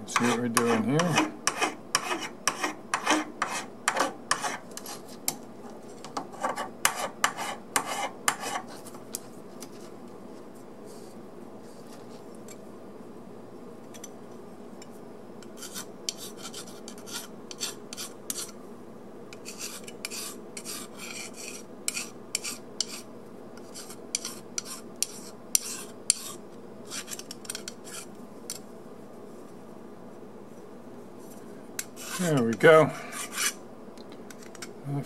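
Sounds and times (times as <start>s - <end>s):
steady background hum: 0.0s - 35.0s
file rasping on metal: 0.1s - 5.0s, 6.4s - 8.7s, 15.5s - 18.5s, 19.4s - 27.2s, 33.1s - 33.6s.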